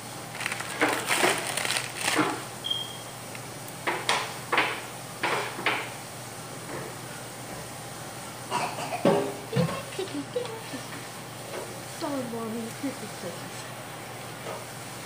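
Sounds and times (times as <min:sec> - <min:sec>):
toys and packaging crunching: 0:00.3 - 0:02.5.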